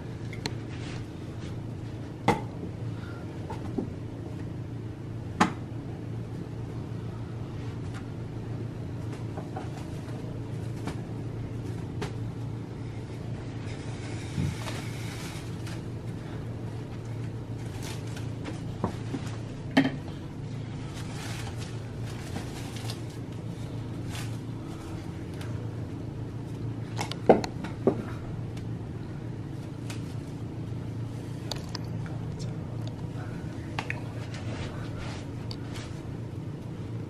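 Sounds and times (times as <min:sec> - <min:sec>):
steady low hum: 0:00.0 - 0:37.0
cling wrap crinkling: 0:13.6 - 0:19.7, 0:20.6 - 0:25.6.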